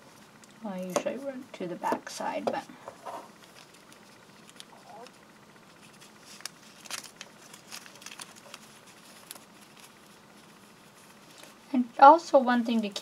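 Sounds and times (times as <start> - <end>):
paper rustling and tearing: 5.8 - 11.6.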